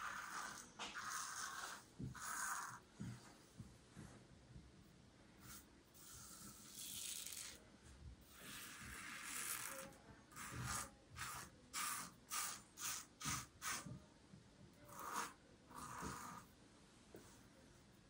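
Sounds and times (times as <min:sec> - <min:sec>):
razor scraping lathered stubble: 0:00.0 - 0:02.8, 0:09.0 - 0:12.9.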